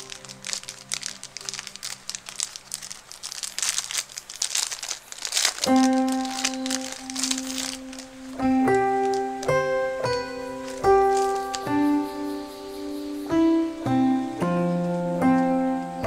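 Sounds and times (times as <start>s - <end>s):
plastic packaging crinkling: 0.0s - 12.5s
piano background music: 0.0s - 16.0s.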